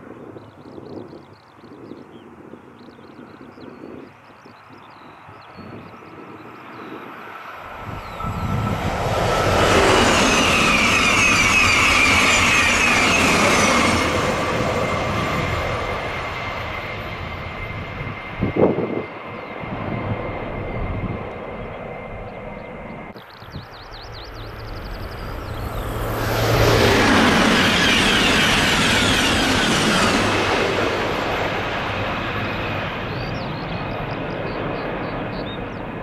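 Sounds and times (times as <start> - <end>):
high-speed train passing: 4.6 - 36.0
rhythmic clatter of train cars: 7.6 - 17.2.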